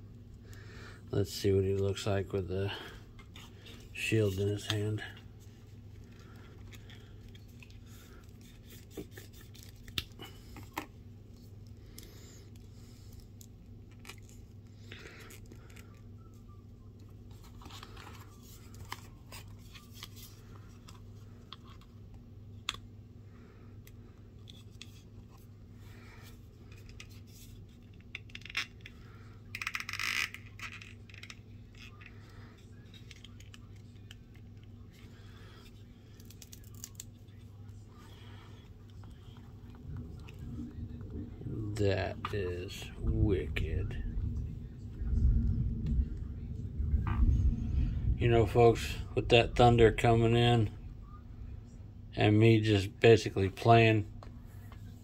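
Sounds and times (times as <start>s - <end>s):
low hum: 30.6s - 55.0s.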